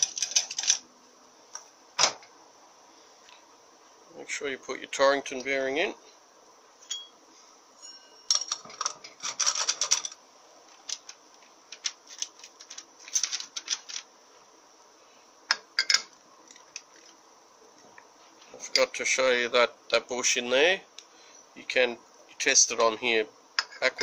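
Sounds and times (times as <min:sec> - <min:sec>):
metal parts clicking and scraping: 0:00.0 - 0:00.8, 0:08.3 - 0:14.1.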